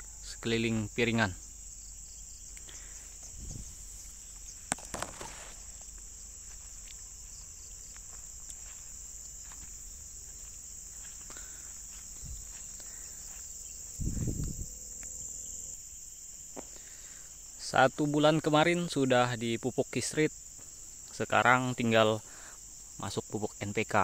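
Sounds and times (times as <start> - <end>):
insects calling: 0.0 - 24.0
low rustle: 2.8 - 15.3.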